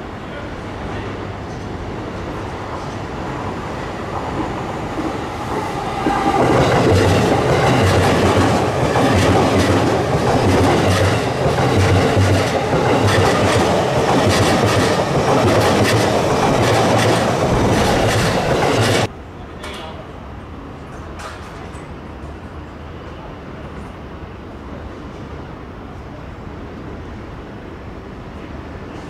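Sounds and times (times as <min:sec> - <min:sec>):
electric train passing: 0:00.0 - 0:19.1
wheels clacking over rail joints: 0:04.3 - 0:19.1.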